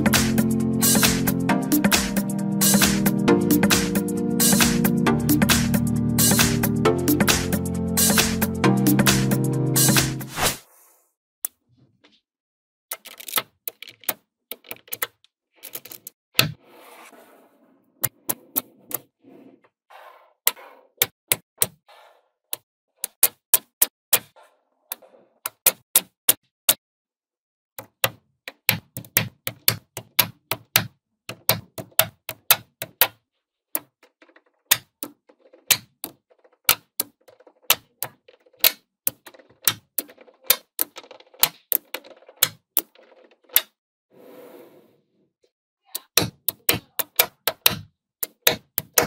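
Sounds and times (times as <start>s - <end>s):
magnetic balls clicking: 12.9s - 16.2s, 33.8s - 43.7s, 46.0s - 49.0s.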